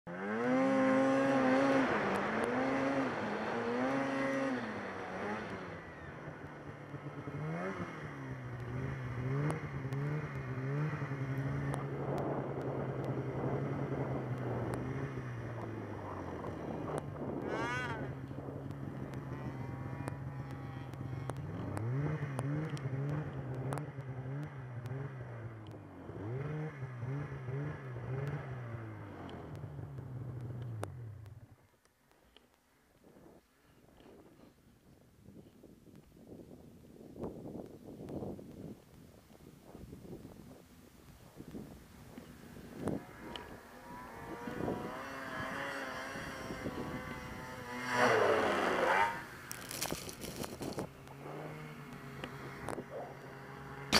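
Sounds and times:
snowmobile engine revving: 0.0s - 31.2s, 42.0s - 53.9s.

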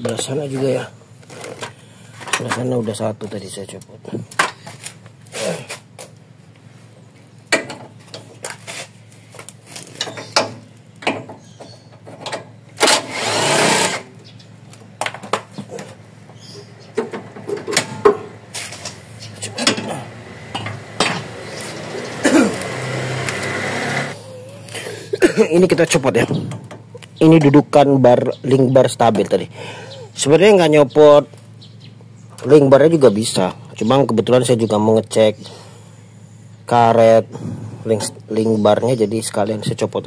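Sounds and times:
metal clanks and knocks: 7.5s - 8.5s, 9.9s - 13.1s, 16.9s - 21.4s
impact wrench bursts: 12.8s - 14.2s, 20.5s - 24.2s.

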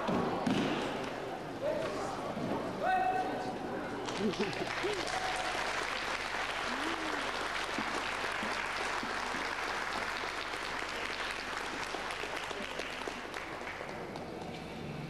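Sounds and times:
audience applauding: 4.0s - 14.4s.

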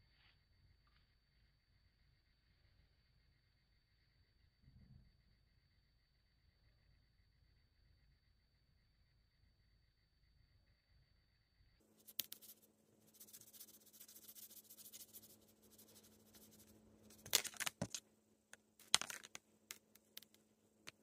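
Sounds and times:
faint steady hum: 0.0s - 21.0s
plastic toy rustling and clicking: 17.2s - 18.0s, 18.8s - 21.0s.

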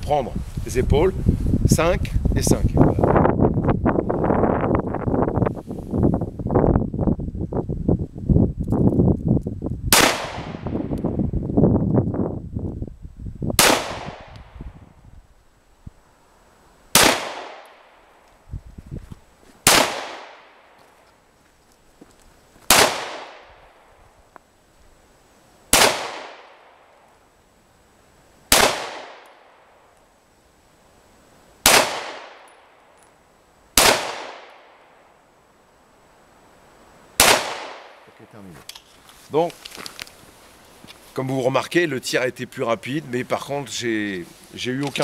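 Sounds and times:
pistol shots with echo: 9.9s - 10.7s, 13.6s - 14.3s, 16.9s - 17.9s, 19.6s - 20.7s, 22.7s - 23.6s, 25.7s - 26.8s, 28.5s - 29.6s, 31.6s - 32.7s, 33.8s - 34.8s, 37.2s - 38.0s.

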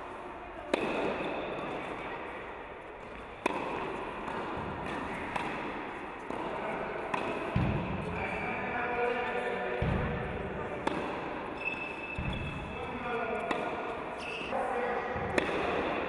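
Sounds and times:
tennis racket hitting ball: 0.6s - 2.1s, 3.0s - 8.1s, 10.8s - 12.6s, 13.4s - 14.4s, 15.2s - 16.0s.

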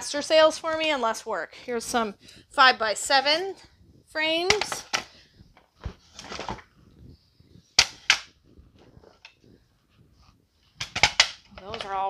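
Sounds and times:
picture frames knocking together: 10.8s - 11.9s.

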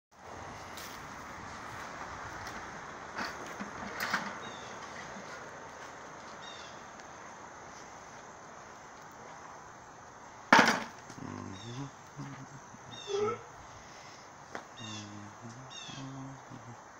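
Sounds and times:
outdoor background noise: 0.1s - 16.9s.

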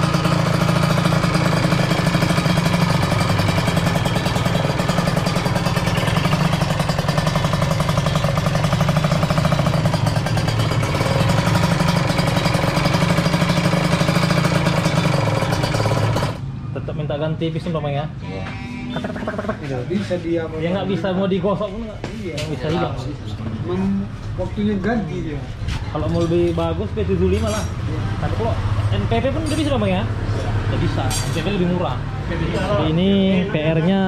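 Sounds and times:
rough two-stroke engine idling: 0.0s - 16.5s.

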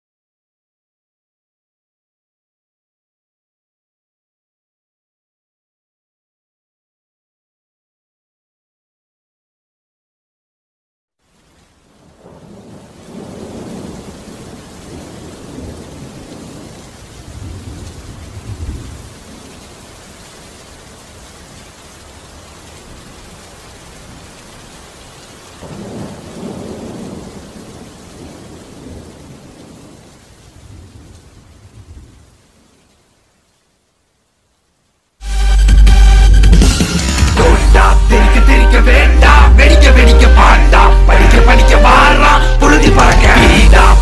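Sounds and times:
heavy rain: 11.2s - 44.0s
rolling thunder: 12.0s - 19.1s, 25.6s - 32.2s, 42.8s - 44.0s.

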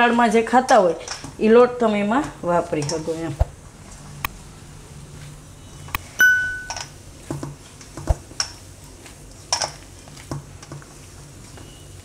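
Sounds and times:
bright ding: 6.2s - 6.9s
hand mixing dough in steel bowl: 7.0s - 12.0s.

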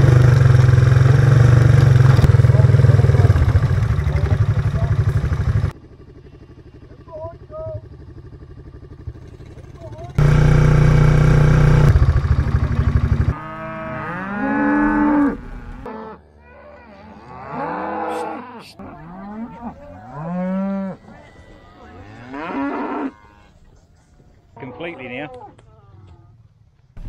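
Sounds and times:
loud engine running: 0.0s - 13.6s
cattle mooing: 12.9s - 23.6s.

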